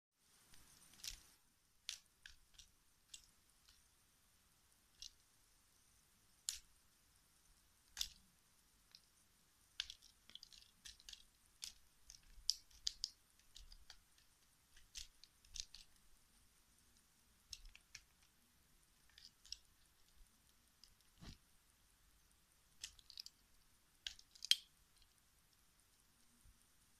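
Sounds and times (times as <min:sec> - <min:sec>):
cat clawing toy clicks and crinkles: 0:00.8 - 0:03.9, 0:05.0 - 0:05.2, 0:06.4 - 0:06.7, 0:07.8 - 0:08.3, 0:09.7 - 0:16.1, 0:17.0 - 0:18.3, 0:19.0 - 0:20.2, 0:22.8 - 0:25.2.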